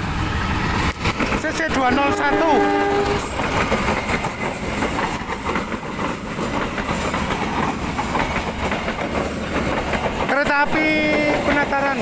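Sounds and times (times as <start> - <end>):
train coaches rolling past: 0.0 - 12.0
wheels clattering over rail joints: 2.8 - 12.0.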